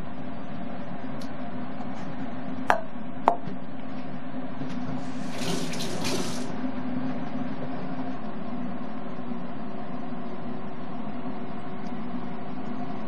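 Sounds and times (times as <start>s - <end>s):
mechanical hum: 0.0s - 13.0s
running water: 5.0s - 6.5s.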